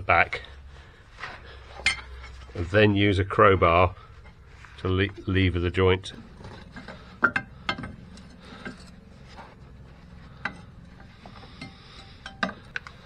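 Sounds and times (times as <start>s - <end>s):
crowbar scraping metal: 6.0s - 12.6s.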